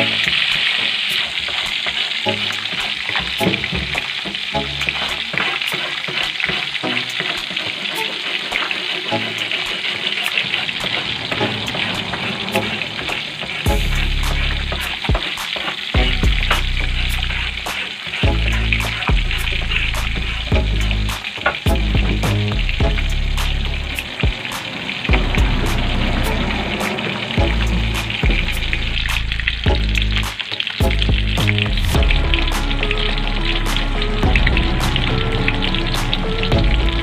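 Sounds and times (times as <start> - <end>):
fish frying in hot oil: 0.0 - 37.0.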